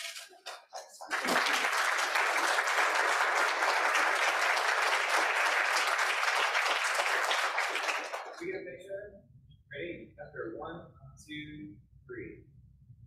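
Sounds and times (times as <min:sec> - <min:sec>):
audience applauding: 0:00.1 - 0:08.4.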